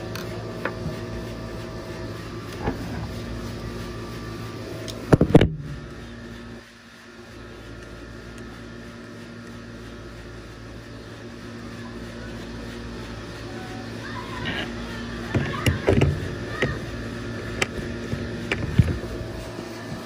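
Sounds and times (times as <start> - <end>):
air conditioner fan hum: 0.0 - 20.0.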